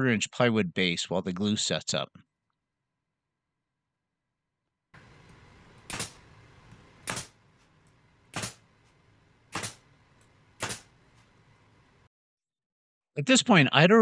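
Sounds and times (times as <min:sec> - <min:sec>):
nail gun firing: 0:05.0 - 0:07.5, 0:08.2 - 0:08.7, 0:09.5 - 0:09.9, 0:10.6 - 0:11.0.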